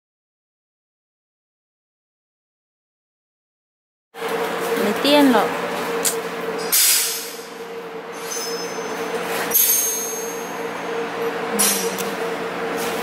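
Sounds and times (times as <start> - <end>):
machine hum: 4.2 - 13.0.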